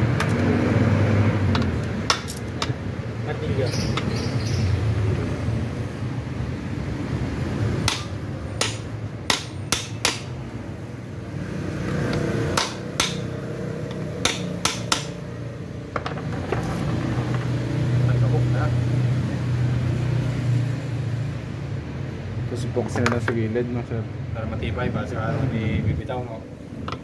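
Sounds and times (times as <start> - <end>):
hammer tapping on metal: 7.8 - 10.4, 12.1 - 13.3, 13.9 - 15.2.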